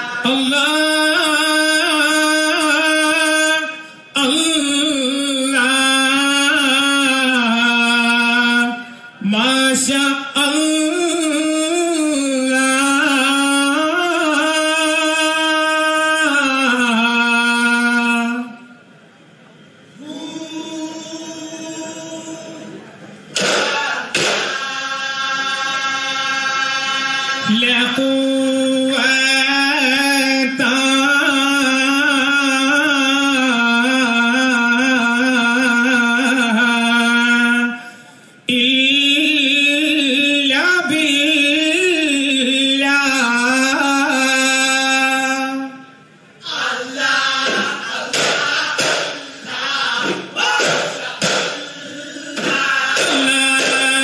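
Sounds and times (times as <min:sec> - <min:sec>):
man singing unaccompanied: 0:00.0 - 0:18.7, 0:24.7 - 0:37.8, 0:38.5 - 0:51.6, 0:52.4 - 0:54.0
men singing: 0:23.6 - 0:37.8, 0:46.4 - 0:54.0.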